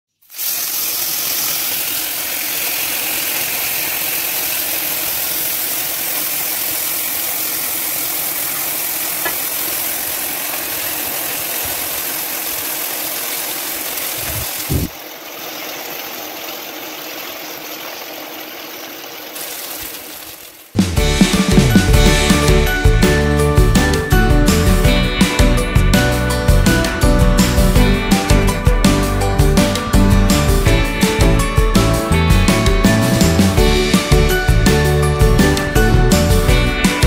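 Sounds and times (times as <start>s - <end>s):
gravy sizzling on hot plate: 0.1s - 14.9s, 19.3s - 22.5s.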